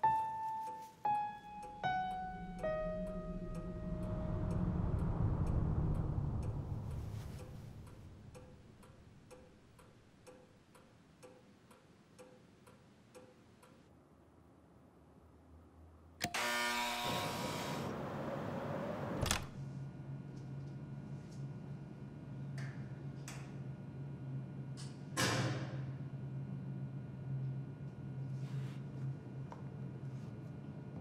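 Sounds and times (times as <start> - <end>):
clock ticking: 1.1 - 13.8
door intercom buzz: 16.3 - 18.0.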